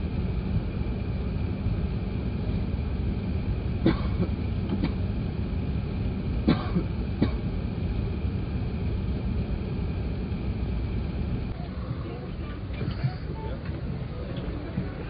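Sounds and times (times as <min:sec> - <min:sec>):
aircraft cabin rumble: 0:00.0 - 0:15.0
faint high whine: 0:00.0 - 0:15.0.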